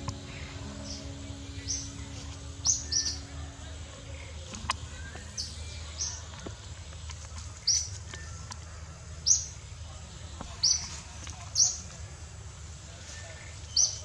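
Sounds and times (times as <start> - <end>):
high-pitched bird chirps: 0.0 - 6.3
low rumble: 0.0 - 7.3.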